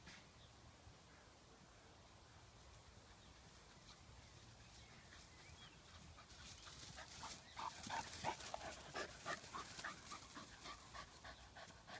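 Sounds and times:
dog panting: 0:05.9 - 0:11.9.

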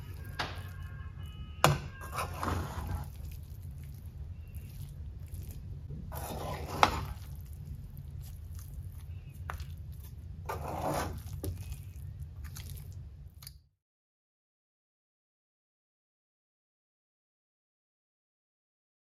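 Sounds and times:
spoon scraping through rice: 0:02.0 - 0:13.0
steady low hum: 0:03.0 - 0:13.5.

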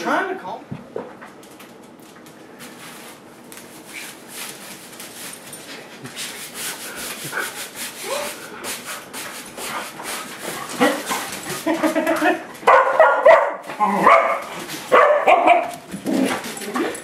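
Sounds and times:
broom sweeping hard floor: 0:02.6 - 0:12.3, 0:14.3 - 0:16.4.

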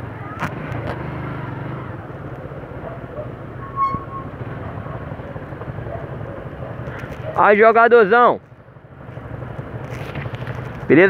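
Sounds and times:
motorcycle engine rumbling: 0:00.0 - 0:11.0
road and traffic noise: 0:00.0 - 0:11.0
short high beep: 0:03.6 - 0:04.4.

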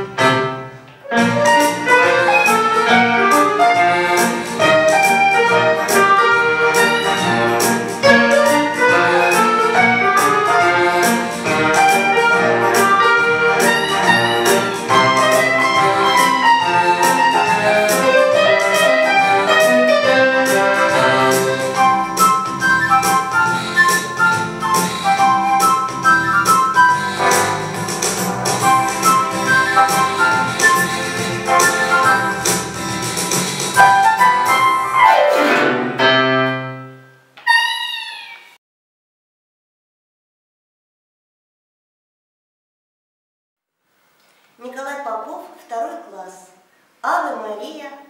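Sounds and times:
drum machine beat: 0:04.1 - 0:34.7.

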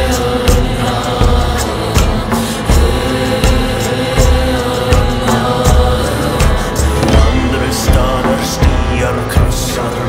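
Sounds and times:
background music with steady beat: 0:00.0 - 0:10.0.

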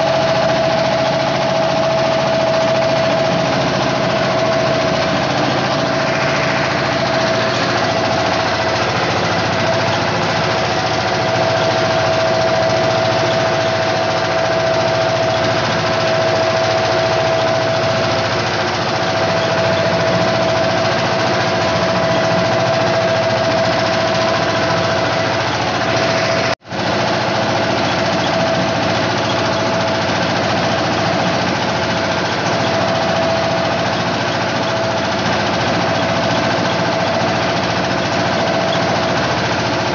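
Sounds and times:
steady high hum: 0:00.0 - 0:33.7
boat engine running: 0:00.0 - 0:39.9.

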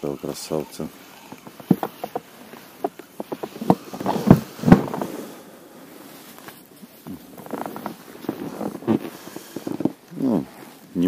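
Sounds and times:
knocks and thumps in a boat: 0:01.2 - 0:05.1.

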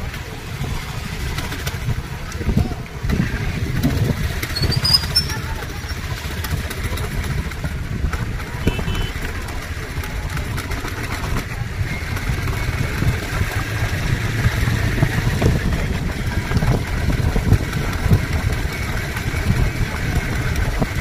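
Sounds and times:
vehicle engine running low rumble: 0:00.0 - 0:21.0.

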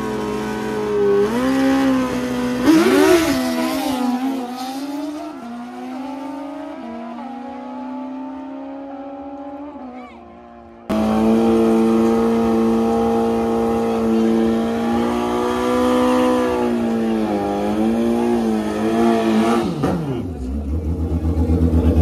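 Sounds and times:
motorcycle engine at high revs: 0:00.0 - 0:09.7, 0:10.8 - 0:22.0.

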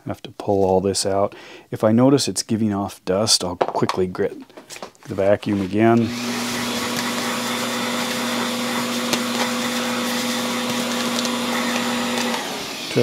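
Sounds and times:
vacuum cleaner running: 0:05.9 - 0:13.0.

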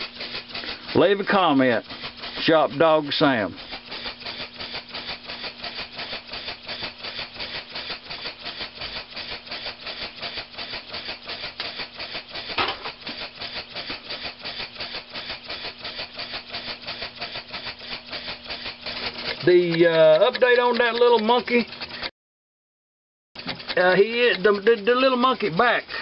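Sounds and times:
air engine exhaust puffs: 0:00.0 - 0:22.1, 0:23.4 - 0:26.0
brief rasp: 0:00.0 - 0:22.1.

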